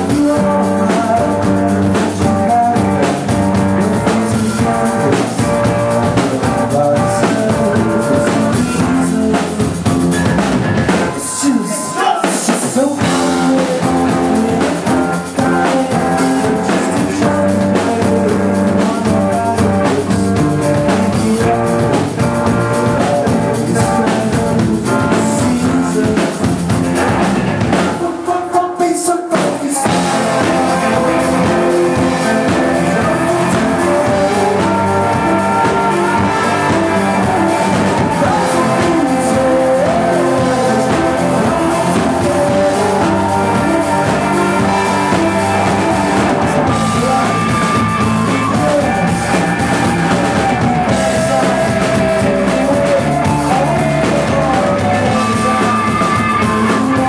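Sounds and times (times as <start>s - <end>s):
live rock band playing: 0.0s - 57.0s
man singing lead vocal: 0.0s - 57.0s.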